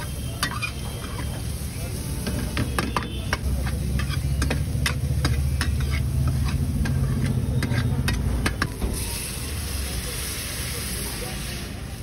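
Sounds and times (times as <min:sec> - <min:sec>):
ladle scraping vegetables in pan: 0:00.0 - 0:09.3
light sizzling: 0:00.0 - 0:12.0.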